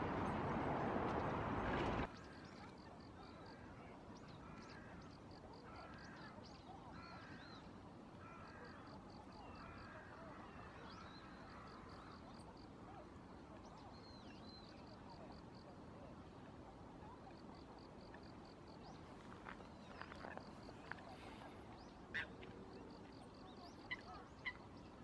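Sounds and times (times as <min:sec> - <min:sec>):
steady rushing noise: 0:00.0 - 0:02.1.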